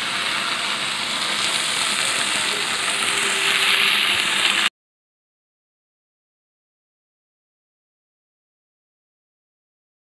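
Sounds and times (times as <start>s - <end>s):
okra sizzling in oil: 0.0s - 4.7s.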